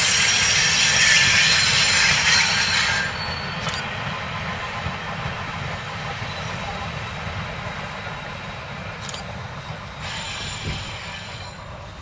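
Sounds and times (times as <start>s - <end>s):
high squeal or hiss: 0.0s - 3.6s, 10.0s - 11.9s
train wheels rumbling on rails: 0.0s - 12.0s.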